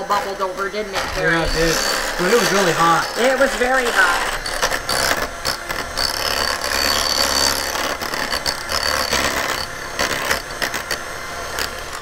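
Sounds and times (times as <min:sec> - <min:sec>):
hand mixer motor whining: 0:00.0 - 0:12.0
beaters scraping against glass: 0:01.4 - 0:10.9.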